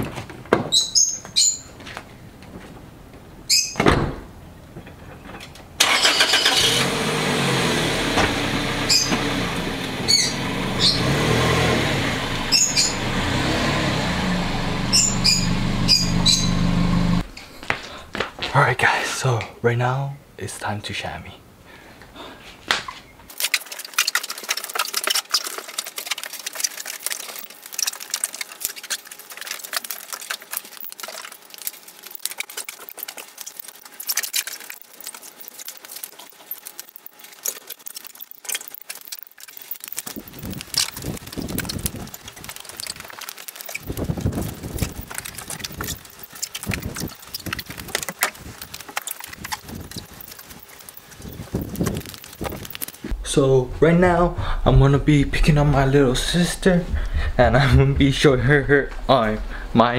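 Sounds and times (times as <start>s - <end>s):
flip-flop footsteps on concrete: 1.1s - 2.8s, 17.4s - 18.6s.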